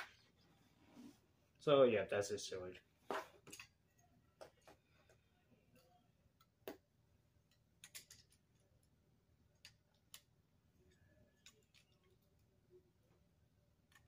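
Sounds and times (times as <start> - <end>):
plastic pieces clicking together: 7.8 - 8.6.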